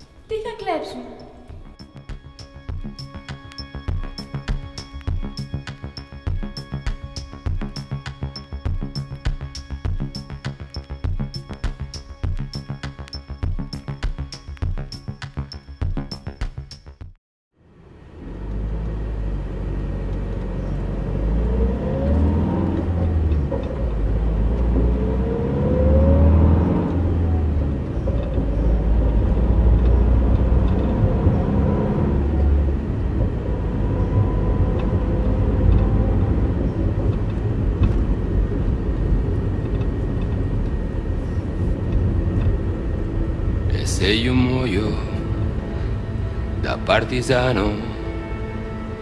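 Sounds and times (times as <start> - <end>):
faint rising whines: 17.6 - 49.0
van engine and road rumble: 17.6 - 49.0.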